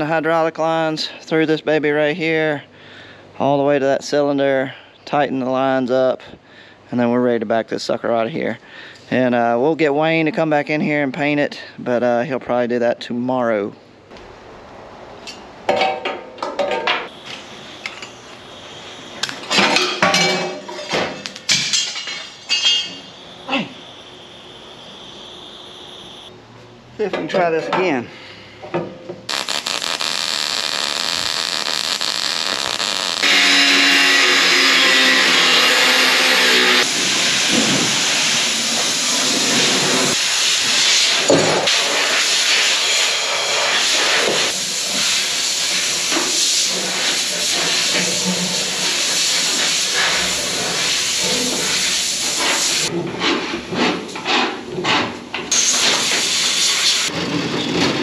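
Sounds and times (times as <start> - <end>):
welder arc crackling and hissing: 17.1 - 26.3, 29.3 - 52.9, 55.5 - 57.1.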